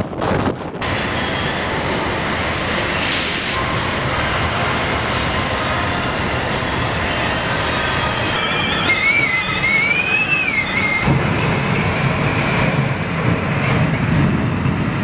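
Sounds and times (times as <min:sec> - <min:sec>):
wind buffeting microphone: 0:00.0 - 0:00.9, 0:11.0 - 0:15.0
rumbling rattling ship noise: 0:00.0 - 0:01.0, 0:11.0 - 0:15.0.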